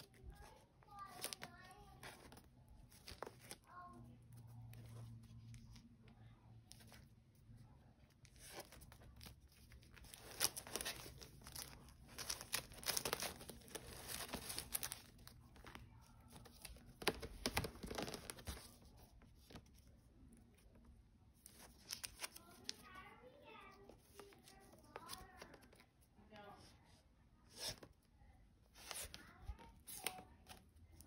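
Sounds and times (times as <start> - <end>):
record sleeves rustling: 0.0 - 26.5, 27.4 - 28.1, 28.7 - 31.0
albums knocking as they tip: 16.4 - 18.8.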